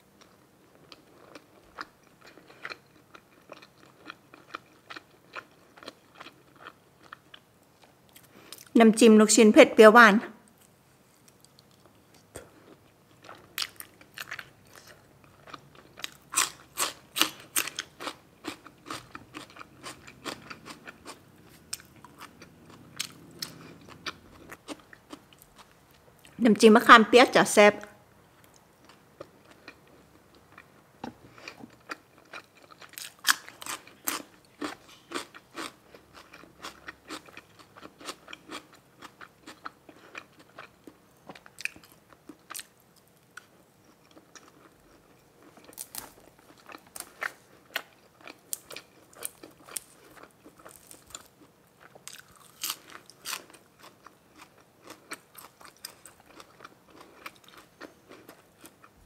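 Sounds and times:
person chewing and crunching food: 0.2 - 8.8, 10.6 - 26.4, 28.3 - 59.0.

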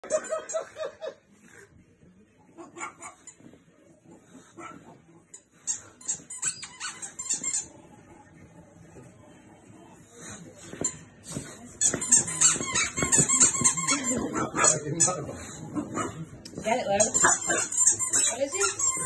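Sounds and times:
muffled puppy barking: 2.6 - 3.2, 4.4 - 5.0
rubber squeaky toy squeaking: 2.6 - 3.5, 5.3 - 7.9, 10.6 - 15.7, 16.5 - 19.0.

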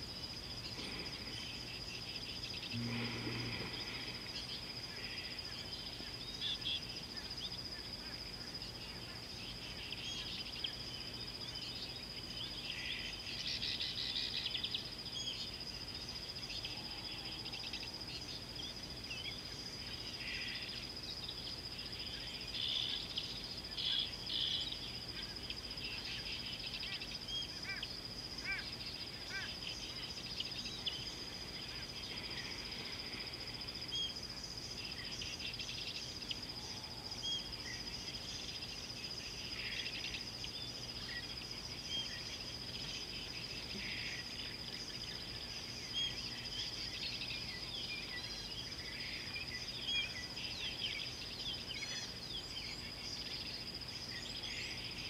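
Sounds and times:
high-pitched insect drone: 0.0 - 8.6.

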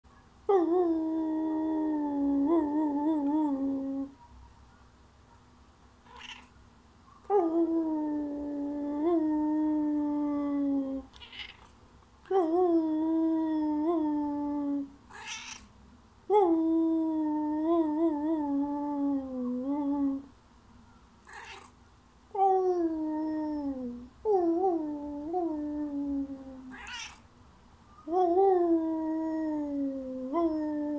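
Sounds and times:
cat calling: 6.0 - 6.5, 11.0 - 11.8, 15.1 - 15.7, 21.2 - 21.8, 26.4 - 27.2
person howling: 7.3 - 11.1, 12.3 - 14.9, 28.1 - 30.9.

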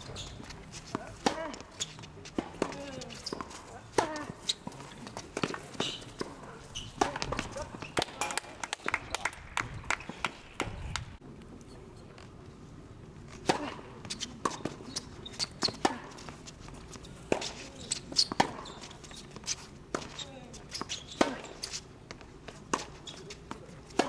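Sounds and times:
tennis ball hit by racket: 0.3 - 1.6, 2.3 - 8.5, 17.3 - 18.7.

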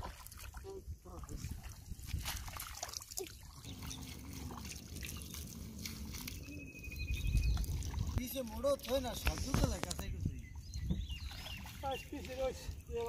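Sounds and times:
water dripping and splashing: 0.0 - 13.0
small wet clicks: 7.3 - 10.4.

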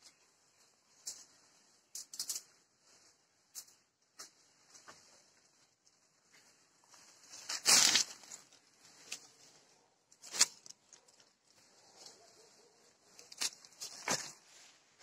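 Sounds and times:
leaves rustling and twigs clicking: 0.9 - 14.7
loud brushing rustle: 6.9 - 10.8.

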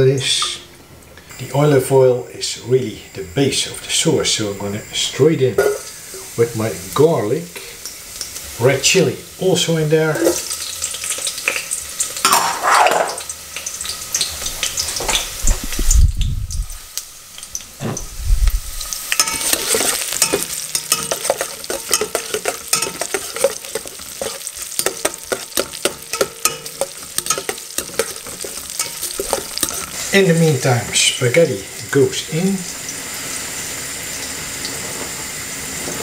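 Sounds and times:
garlic sizzling in oil: 0.0 - 36.0
metal utensil scraping a pan: 12.2 - 13.3, 18.8 - 31.1.

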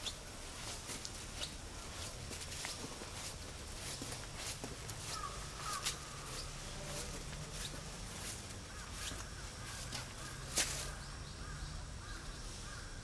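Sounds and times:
footsteps on pavement: 0.0 - 11.0
crows cawing: 5.0 - 7.2, 8.6 - 13.0.

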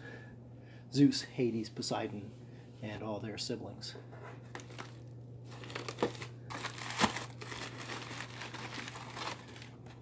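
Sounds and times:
low steady hum: 0.0 - 10.0
packing paper crinkling: 4.5 - 10.0.

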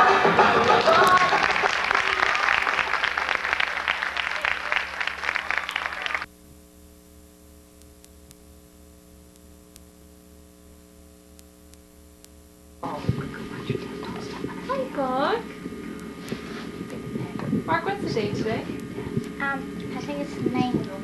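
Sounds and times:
audience applauding: 0.0 - 6.3
electrical mains hum: 0.0 - 21.0.

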